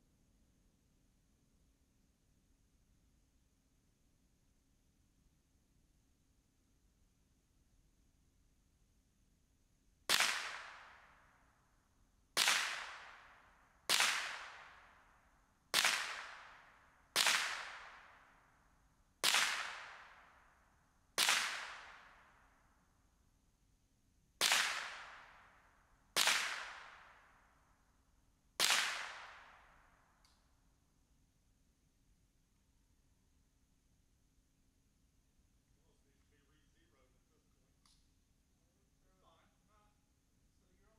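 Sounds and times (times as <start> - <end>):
rifle shots: 28.6 - 29.8.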